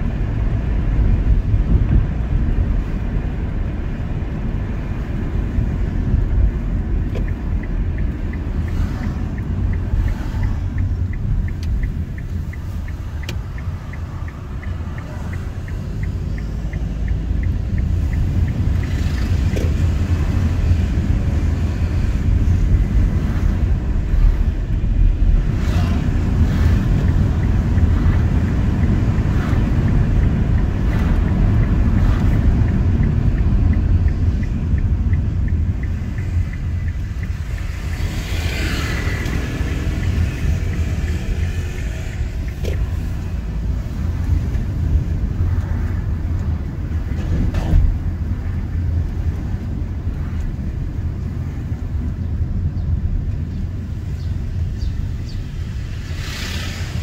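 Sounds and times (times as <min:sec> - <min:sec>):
car road and engine rumble: 0:00.0 - 0:57.0
fast regular ticking: 0:04.7 - 0:21.6, 0:22.2 - 0:47.1.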